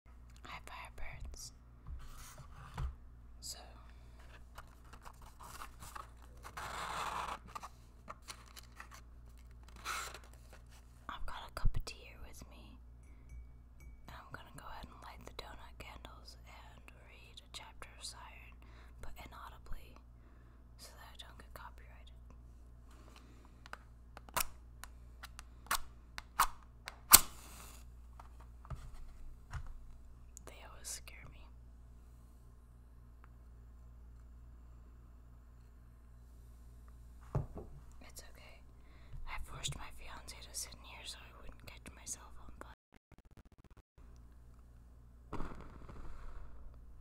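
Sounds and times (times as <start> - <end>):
paper rustling: 4.5 - 11.0
match flaring hiss: 27.1 - 27.9, 45.4 - 46.8.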